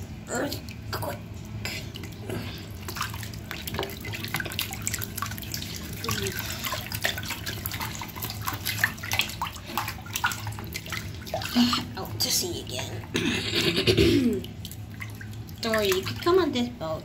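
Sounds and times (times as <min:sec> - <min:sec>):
bathwater sloshing and splashing: 0:00.0 - 0:17.0.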